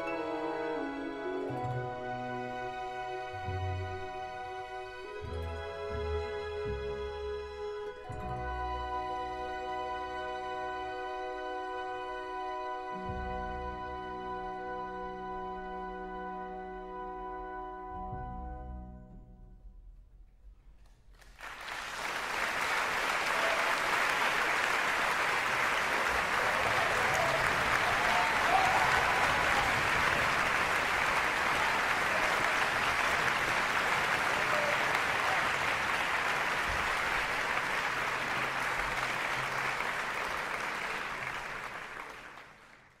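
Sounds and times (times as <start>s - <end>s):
audience applause: 21.2s - 43.0s.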